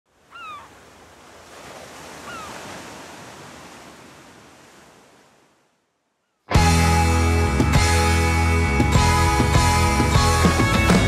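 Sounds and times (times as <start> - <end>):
ocean surf washing in: 0.8 - 5.7.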